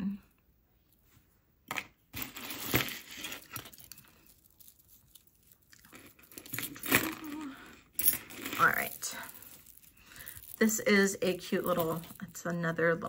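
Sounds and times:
packaging rustling: 0:02.2 - 0:07.6, 0:08.3 - 0:10.9.

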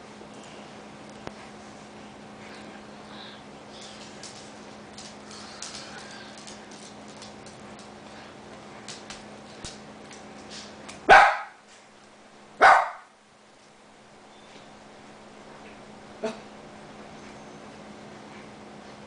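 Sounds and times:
dog barking: 0:11.1 - 0:11.6, 0:12.6 - 0:13.1.

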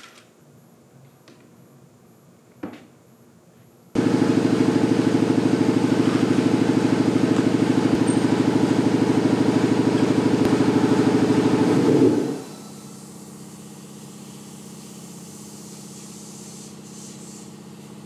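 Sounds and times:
motor-driven machine running: 0:04.0 - 0:13.1.

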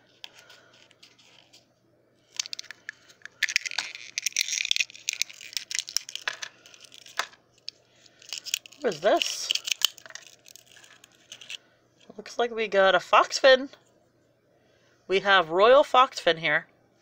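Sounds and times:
toy egg shell crackling: 0:02.2 - 0:11.6.

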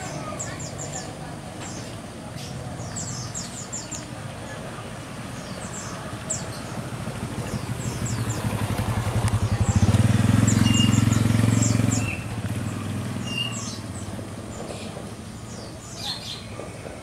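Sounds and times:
passing vehicle engine: 0:05.0 - 0:15.5
high bird chirps: 0:09.3 - 0:12.3, 0:13.2 - 0:14.1.

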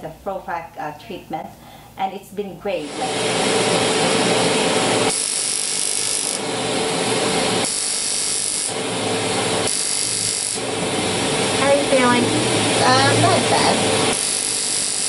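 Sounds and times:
suction hose hissing: 0:02.8 - 0:06.4, 0:07.6 - 0:15.0
vacuum motor running: 0:02.8 - 0:15.0.

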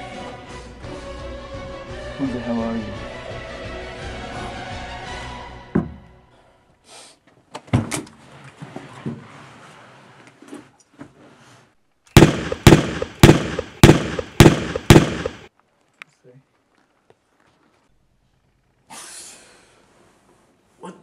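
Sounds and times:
handgun shots: 0:12.2 - 0:15.5.

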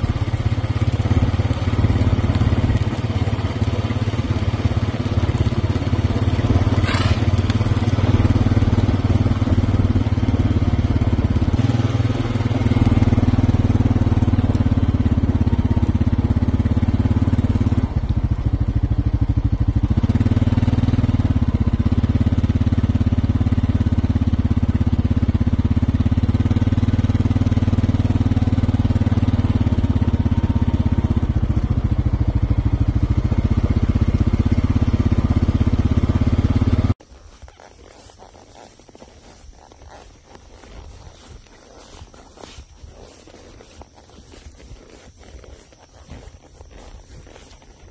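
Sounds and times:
vehicle engine droning: 0:00.0 - 0:47.9.

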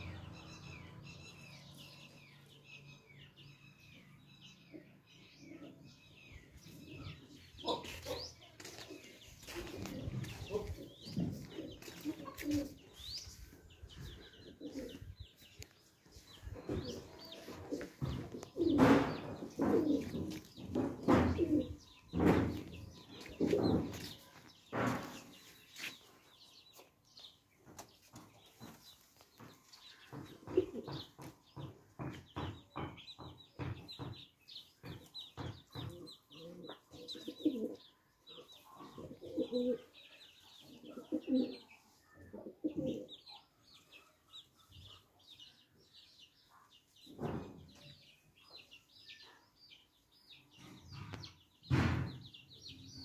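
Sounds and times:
small birds chirping: 0:00.0 - 0:53.0
pigeons cooing: 0:06.8 - 0:13.2, 0:13.9 - 0:15.3, 0:16.6 - 0:24.2, 0:30.2 - 0:31.6, 0:35.9 - 0:43.3.

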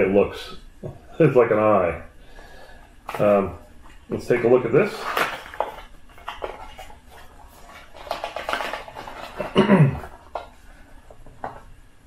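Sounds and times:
cardboard rustling and scraping: 0:04.8 - 0:11.6.

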